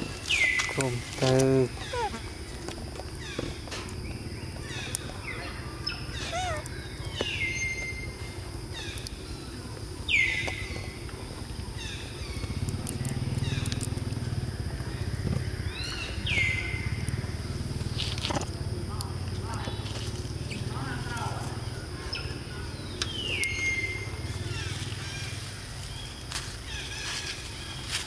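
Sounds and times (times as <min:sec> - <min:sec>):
high-pitched animal calls: 0:00.6 - 0:02.4, 0:05.8 - 0:07.1.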